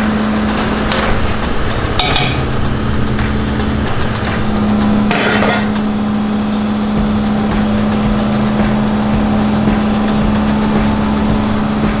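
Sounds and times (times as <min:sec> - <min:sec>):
machine motor hum: 0:00.0 - 0:12.0.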